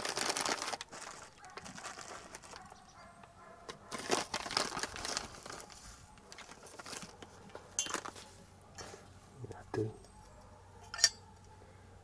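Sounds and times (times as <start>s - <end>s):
foil bag crinkling: 0.0s - 2.9s, 3.7s - 8.2s.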